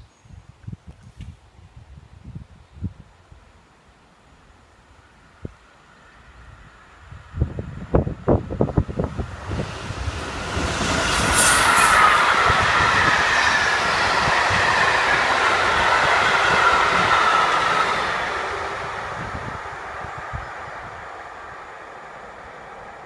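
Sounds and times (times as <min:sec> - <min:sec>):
diesel locomotive passing: 0:05.7 - 0:23.0
high whine sliding down: 0:08.6 - 0:19.6.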